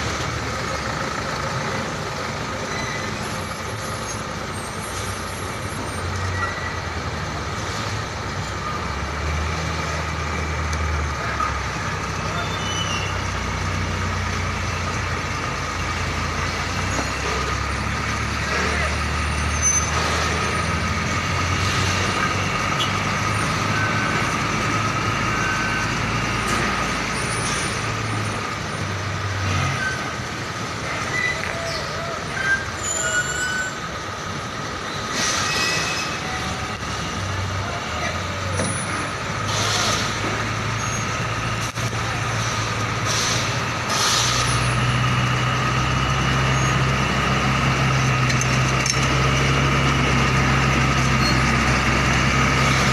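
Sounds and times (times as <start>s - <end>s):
truck diesel engines running: 0.0s - 52.9s
air brake hisses: 35.0s - 36.1s, 39.4s - 40.2s, 42.4s - 44.7s.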